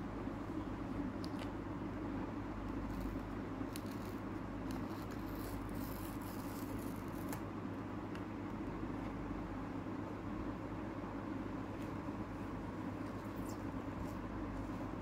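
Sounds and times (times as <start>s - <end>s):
paper sticker peeling crackle: 2.7s - 7.5s.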